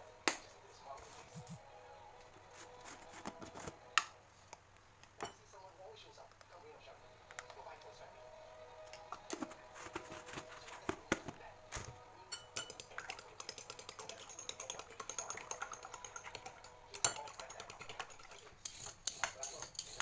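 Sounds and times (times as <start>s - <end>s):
utensil beating egg in glass bowl: 12.3s - 20.0s.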